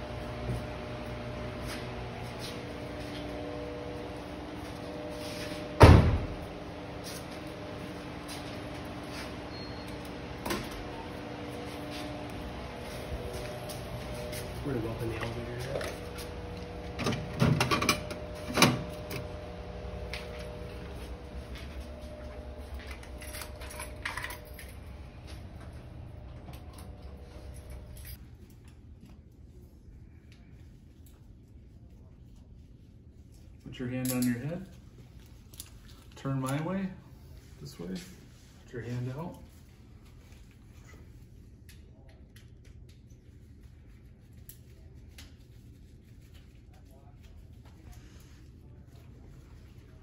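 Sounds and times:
faint hum: 0.0 - 36.2
car door slamming: 5.8 - 6.4.

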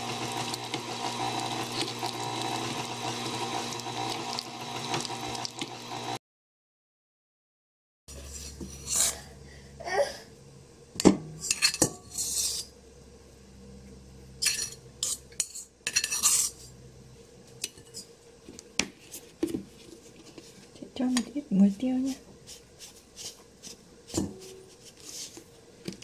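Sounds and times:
spoon scraping bowls: 11.4 - 12.8, 14.4 - 16.8.

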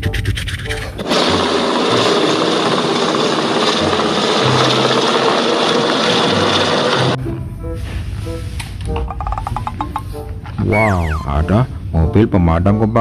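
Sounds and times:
helicopter rotor and turbine: 1.0 - 7.2
light music with plucked notes: 7.2 - 13.0.

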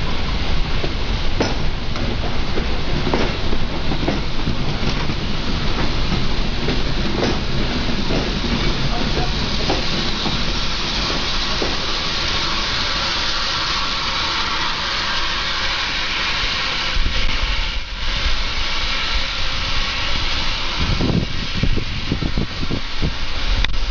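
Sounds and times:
steam hissing: 0.0 - 23.9
train wheels rumbling: 0.0 - 23.9.

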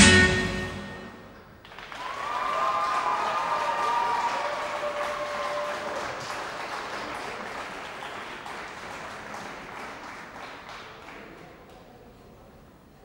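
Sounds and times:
audience applauding: 1.6 - 11.8.

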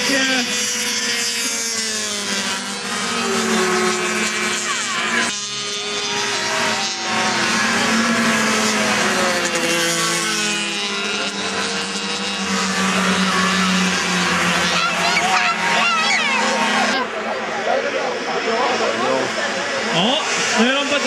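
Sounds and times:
snowmobile engines racing past: 0.0 - 21.0.

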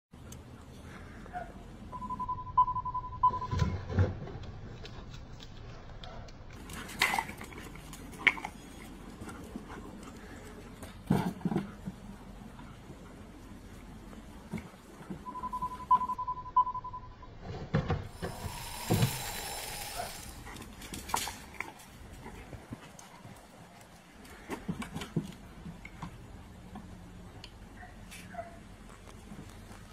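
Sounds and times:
short high beep: 1.9 - 3.7, 15.2 - 17.3
dog sounds: 19.8 - 24.0.

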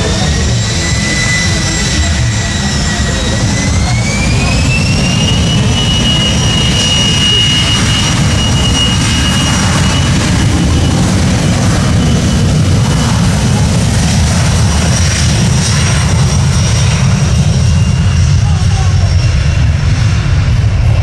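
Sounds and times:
jet engine whine: 0.0 - 21.0
low engine rumble: 0.0 - 21.0.

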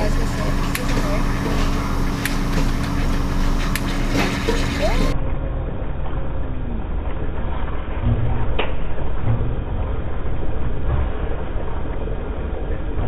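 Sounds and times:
frozen drink machine humming: 0.0 - 7.9.

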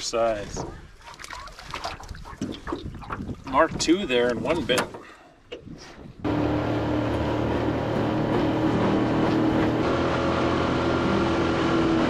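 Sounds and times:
outboard motor running: 6.2 - 12.0.

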